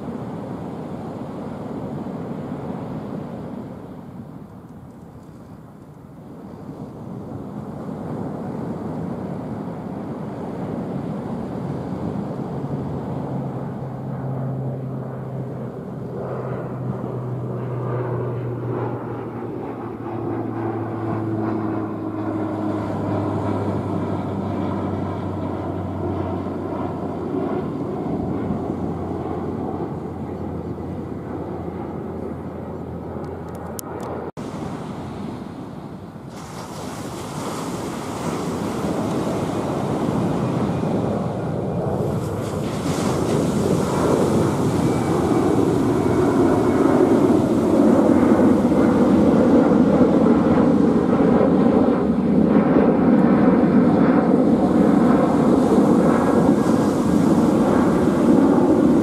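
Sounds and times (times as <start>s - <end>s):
airliner engine drone: 0.0s - 59.0s
wind noise: 0.0s - 59.0s
breaking surf: 34.4s - 49.5s, 54.6s - 59.0s.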